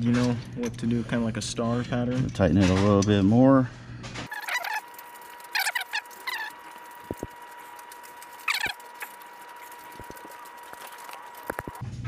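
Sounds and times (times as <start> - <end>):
high wavering squeaks: 4.3 - 11.8.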